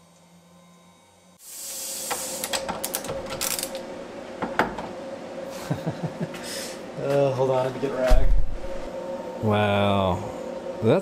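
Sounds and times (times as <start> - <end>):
burst of hiss: 1.4 - 2.5.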